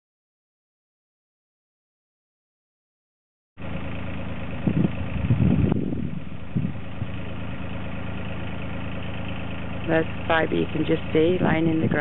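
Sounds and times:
diesel engine idling: 0:03.6 - 0:12.0.

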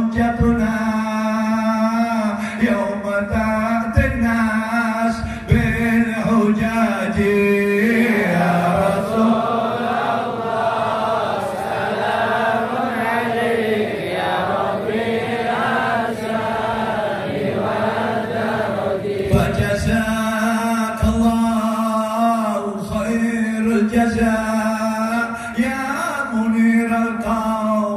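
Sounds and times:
man chanting: 0:00.0 - 0:09.8, 0:19.3 - 0:27.9.

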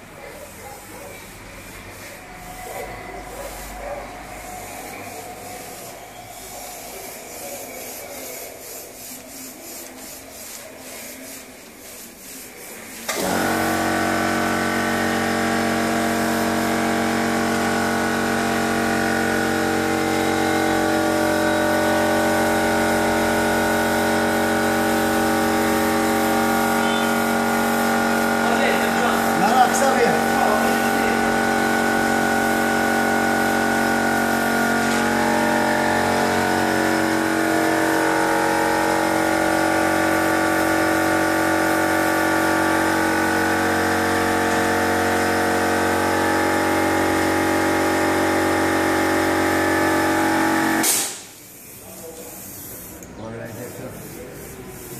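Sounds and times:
air compressor humming: 0:00.0 - 0:54.9
rubbing noises: 0:01.6 - 0:13.1.

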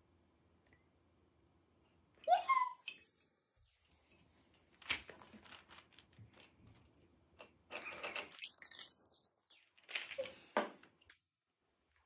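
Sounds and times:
plastic wrappers crinkling: 0:04.5 - 0:07.0, 0:07.8 - 0:10.9.

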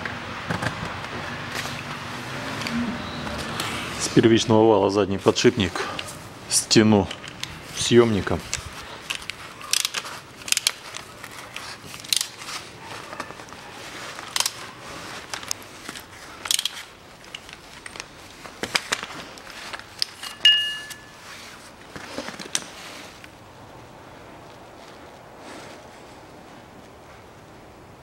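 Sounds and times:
metal-on-metal clinks: 0:20.2 - 0:21.2
bright metallic ring: 0:20.3 - 0:21.3.

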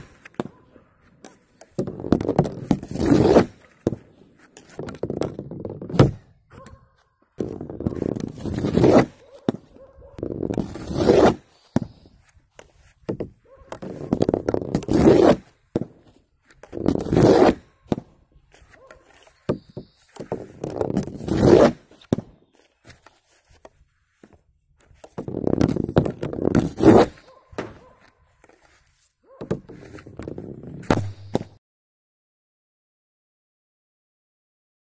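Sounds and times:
stick scraping ball on wooden board: 0:00.0 - 0:31.6
stick cracking against ball: 0:07.4 - 0:22.4.

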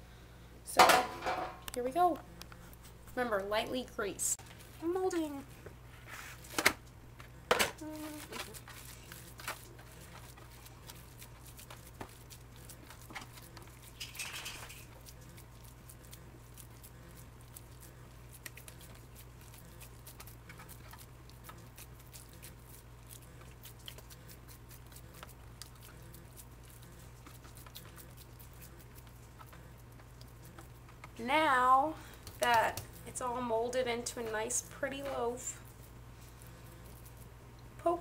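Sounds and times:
hands patting meat mixture: 0:07.9 - 0:33.3.

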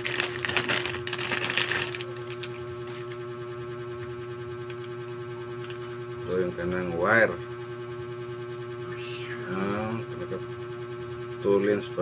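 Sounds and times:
plastic packaging crinkling: 0:00.0 - 0:03.2
steady hum: 0:00.0 - 0:12.0.

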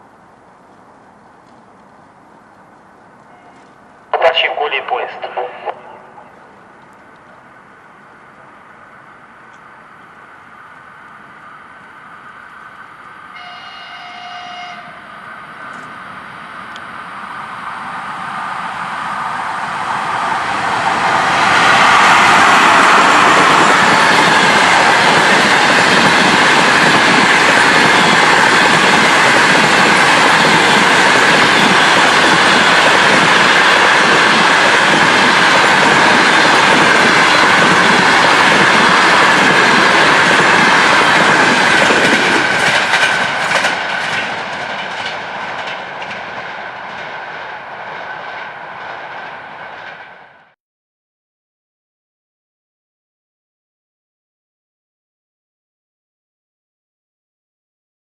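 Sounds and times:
train wheel-on-rail noise: 0:00.0 - 0:50.6
train horn blast: 0:13.3 - 0:15.2.

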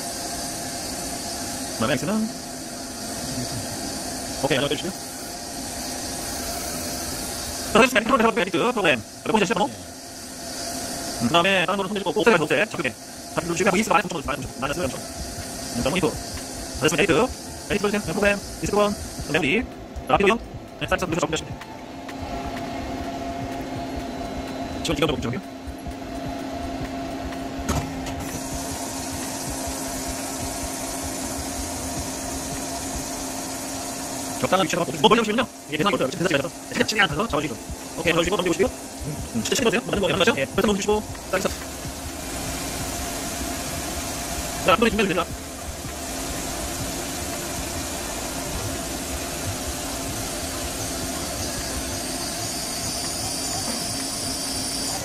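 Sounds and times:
coolant spraying: 0:00.0 - 0:55.0
cutting hiss: 0:00.0 - 0:55.0
high machine whine: 0:00.0 - 0:55.0
lathe machine hum: 0:00.0 - 0:55.0.

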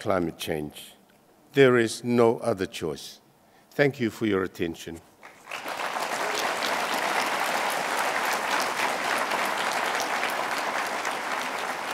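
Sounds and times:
audience applauding: 0:05.2 - 0:11.9.

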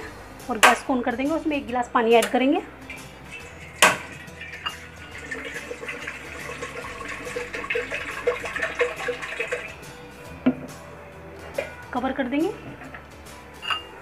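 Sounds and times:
sharp metal clank: 0:02.9 - 0:04.8
water poured into pot: 0:02.9 - 0:10.0.

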